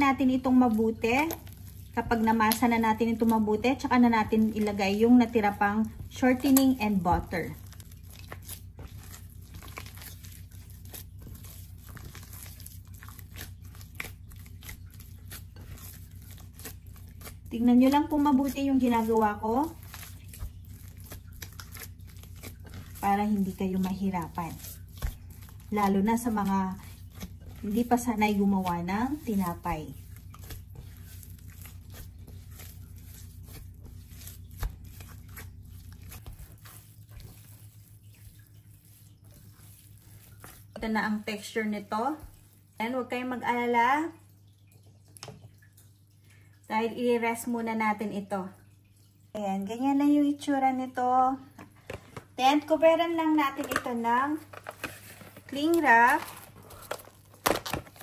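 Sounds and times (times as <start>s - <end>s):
dough tearing and squishing: 0.0s - 42.8s, 53.6s - 58.0s
steady low hum: 0.0s - 43.6s.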